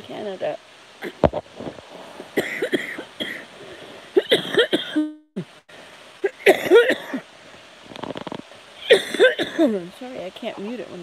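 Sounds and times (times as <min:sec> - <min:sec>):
woman coughing: 0:02.4 - 0:03.4, 0:04.2 - 0:05.2, 0:06.2 - 0:07.2, 0:08.8 - 0:09.8.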